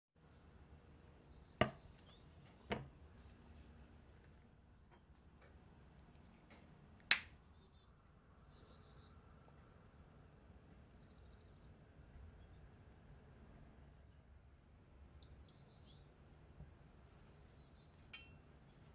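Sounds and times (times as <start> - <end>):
faint bird chirps: 6.0 - 13.0
glass plate and spoon clinking: 18.1 - 18.4.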